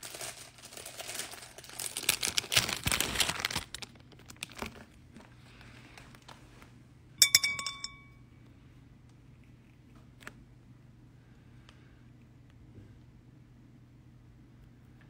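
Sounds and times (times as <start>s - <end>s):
packaging crinkling: 0.0s - 5.3s
glass or metal clink: 7.2s - 8.2s.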